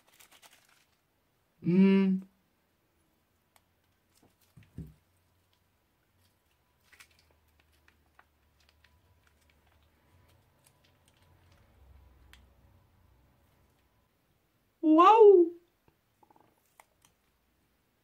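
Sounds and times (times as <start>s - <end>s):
soft clicks and crackles: 3.5s - 12.5s, 15.8s - 17.4s.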